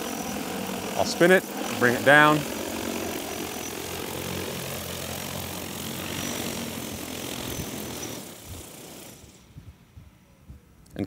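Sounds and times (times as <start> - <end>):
drone propellers whirring: 0.0 - 10.8.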